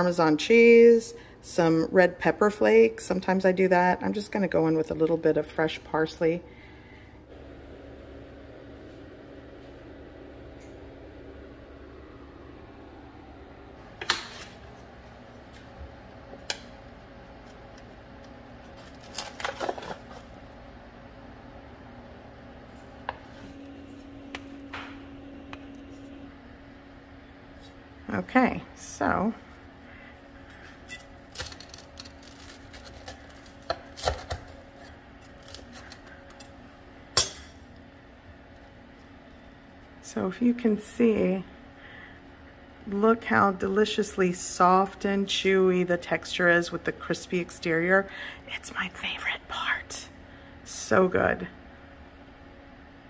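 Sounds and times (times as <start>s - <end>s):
low steady hum: 0.0s - 53.0s
knife crunching through bread crust: 18.6s - 20.3s, 30.9s - 36.4s.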